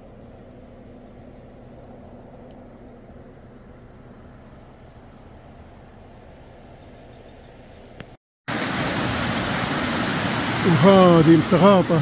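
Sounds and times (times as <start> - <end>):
low rumble with faint hum: 0.0 - 8.2
stream splashing over rocks: 8.5 - 12.0.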